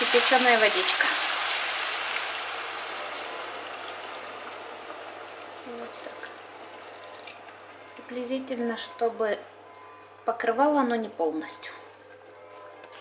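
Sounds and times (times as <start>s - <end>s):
water pouring into a pot: 0.0s - 7.5s
food sizzling: 0.0s - 7.7s.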